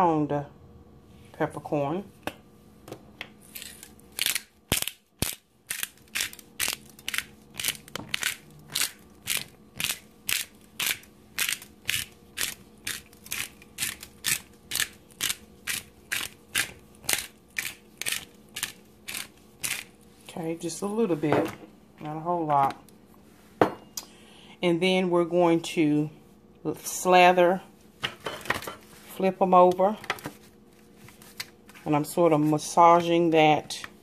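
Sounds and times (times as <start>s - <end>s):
pepper grinder crunching: 3.4s - 20.0s.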